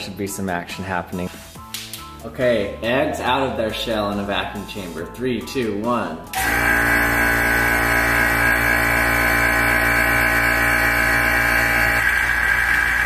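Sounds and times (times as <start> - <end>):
vacuum pump humming: 6.4 - 13.0.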